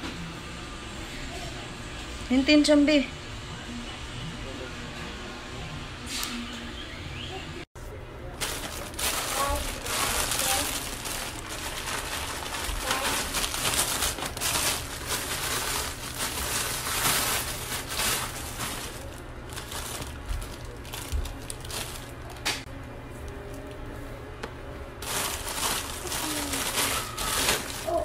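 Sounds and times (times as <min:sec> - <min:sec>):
plastic bags crinkling: 0:08.3 - 0:22.6, 0:25.0 - 0:28.0.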